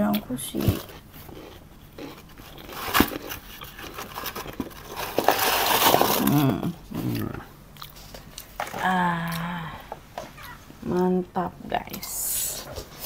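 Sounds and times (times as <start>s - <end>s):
papadums crackling and rustling: 0.0s - 9.0s.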